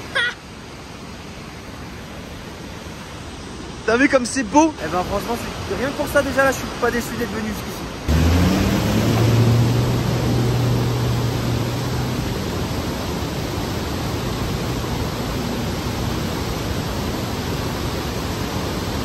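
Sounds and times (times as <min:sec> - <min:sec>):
roar of waterfall: 0:00.0 - 0:19.0
diesel engine humming: 0:08.1 - 0:17.6.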